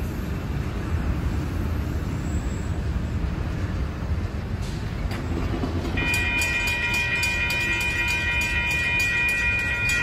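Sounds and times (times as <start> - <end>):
train rumble: 0.0 - 10.0
faint bell ticks: 6.0 - 10.0.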